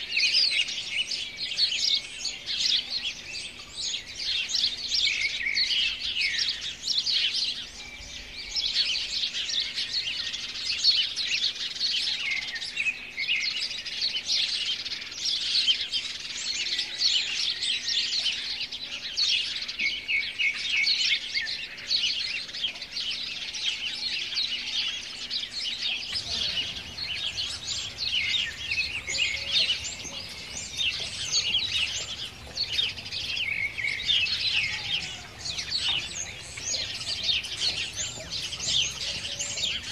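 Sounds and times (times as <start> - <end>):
small birds chirping chorus: 0.0 - 39.9.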